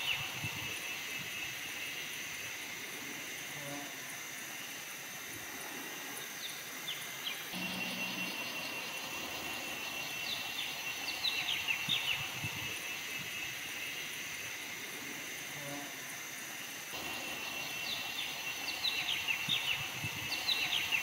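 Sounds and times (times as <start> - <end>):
high insect drone: 0.0 - 21.0
birds chirping: 6.2 - 14.2, 17.0 - 21.0
low hum: 7.6 - 12.7.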